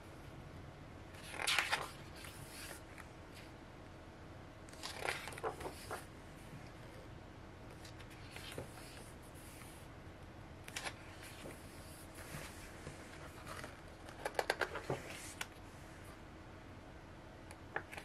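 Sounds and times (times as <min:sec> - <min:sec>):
paper pages turning: 0:01.2 - 0:02.8, 0:04.7 - 0:06.1, 0:10.7 - 0:11.5.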